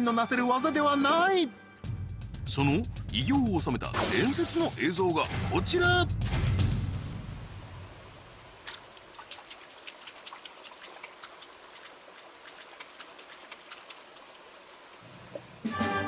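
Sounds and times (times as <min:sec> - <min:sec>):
faint outdoor ambience: 0:04.1 - 0:16.0.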